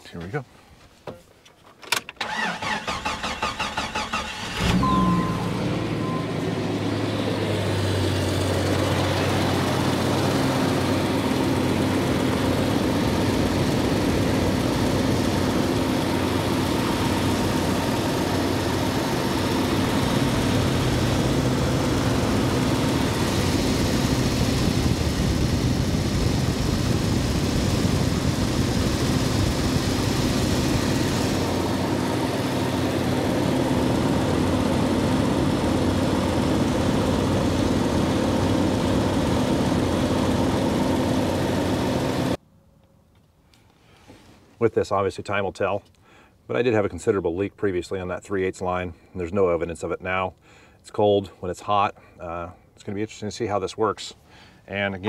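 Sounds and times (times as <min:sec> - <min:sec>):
car engine idling: 0:02.2 - 0:42.3.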